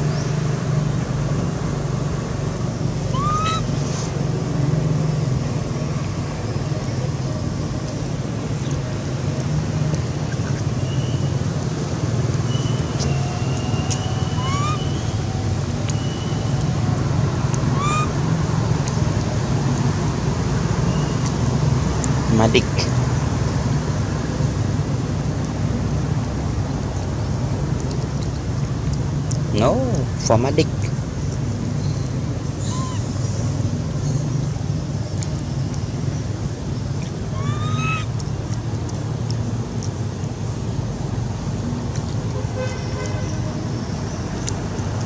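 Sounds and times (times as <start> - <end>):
low outdoor rumble: 0.0 - 45.0
rising squeaky call: 3.1 - 3.8, 12.5 - 16.8, 17.7 - 18.2, 32.6 - 33.4, 37.3 - 38.1
high rising chirps: 12.5 - 15.3.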